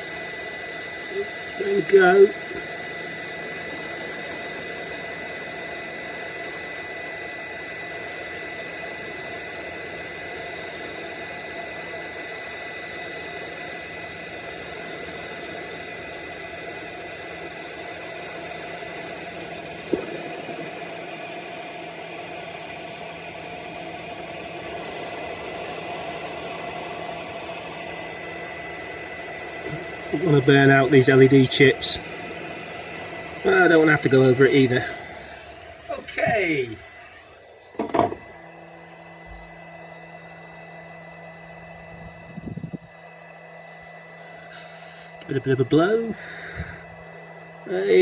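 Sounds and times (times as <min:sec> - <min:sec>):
hot air gun blowing: 0:00.0 - 0:48.0.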